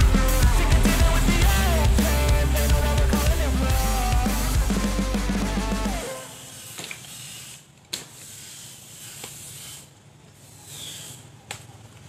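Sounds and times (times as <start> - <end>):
outdoor hiss: 0.0 - 11.4.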